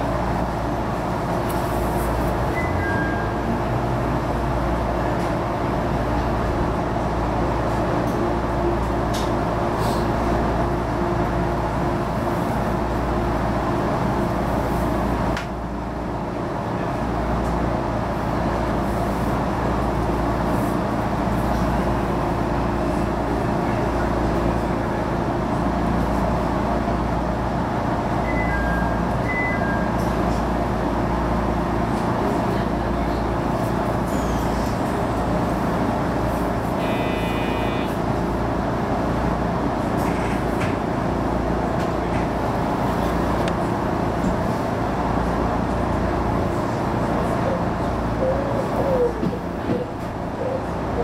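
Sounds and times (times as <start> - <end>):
railcar rumble and hum: 0.0 - 51.0
short beeps: 28.2 - 30.0, 36.8 - 38.0.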